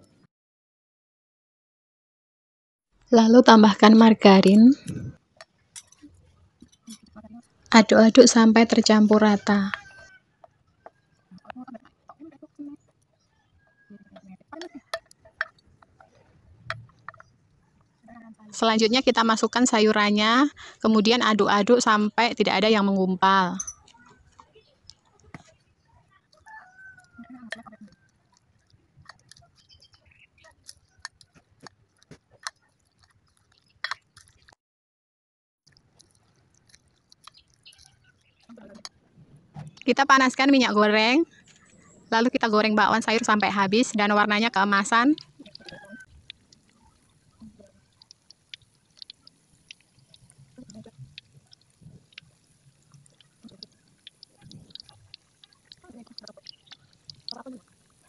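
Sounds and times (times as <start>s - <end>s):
oil crackling and popping: 9.7s - 19.8s, 23.8s - 34.6s, 35.7s - 39.0s, 42.5s - 58.0s
wet squelching of batter: 23.8s - 34.6s, 35.7s - 39.0s, 39.7s - 58.0s.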